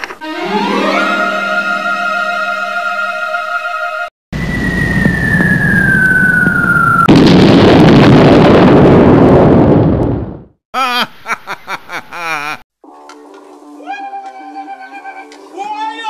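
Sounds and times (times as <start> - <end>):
descending whistle: 1.4 - 7.1
rumble: 4.4 - 10.5
loud explosion blast: 4.4 - 10.6.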